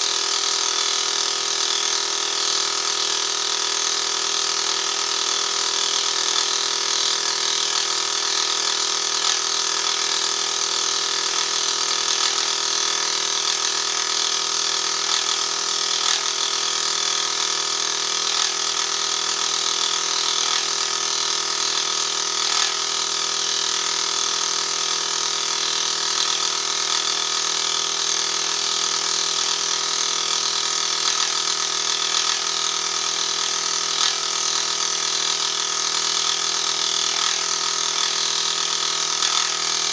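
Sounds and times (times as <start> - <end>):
milling machine motor whine: 0.1 - 39.9.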